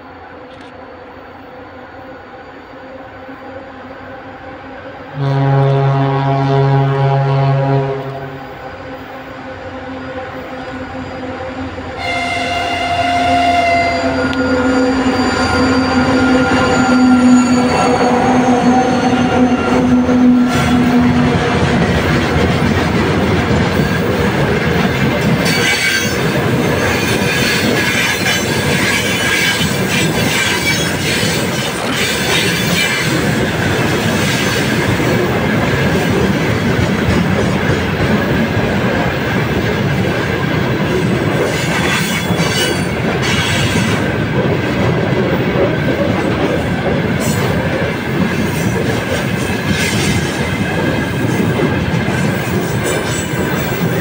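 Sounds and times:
high wheel screeches: 12.0s - 21.1s
steel wheels running on rails: 12.6s - 54.0s.

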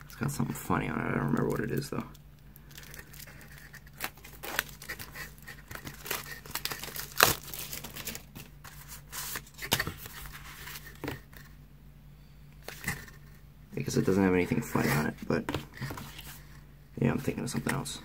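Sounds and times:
paper rustling and crinkling: 2.6s - 11.5s, 14.0s - 16.6s.

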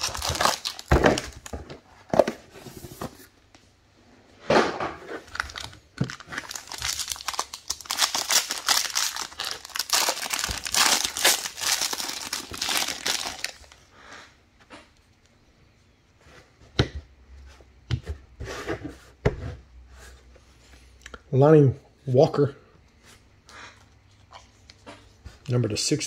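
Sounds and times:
foil wrapper crinkling and tearing: 0.0s - 1.5s, 5.3s - 13.8s.

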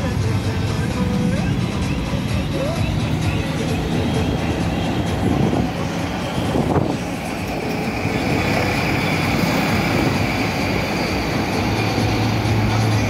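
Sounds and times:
car road and engine noise: 0.0s - 13.0s.

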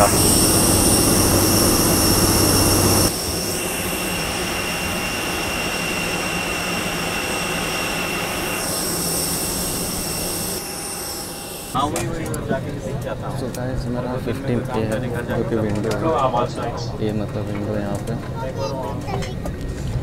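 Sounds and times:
jet engine whine and hum: 0.0s - 20.0s.

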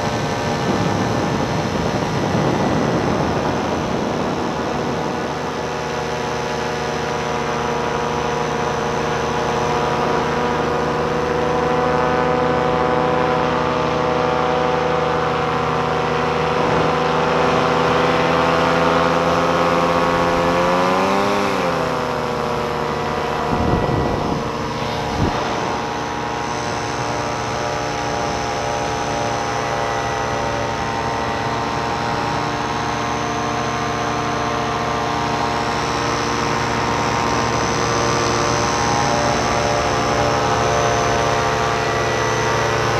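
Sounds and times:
paramotor engine and propeller: 0.0s - 42.9s
low thumps: 23.4s - 26.2s.

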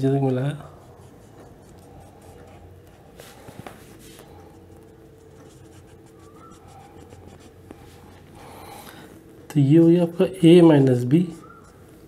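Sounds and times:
steady low hum: 0.0s - 12.0s
marker scratching on whiteboard: 0.8s - 3.0s, 4.0s - 7.8s.

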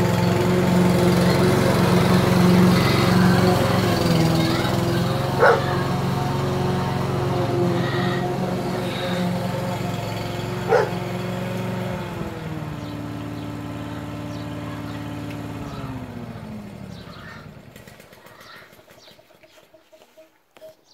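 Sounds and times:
lawn mower engine running: 0.0s - 19.6s
dog barking loudly: 5.3s - 5.9s, 10.6s - 11.0s.

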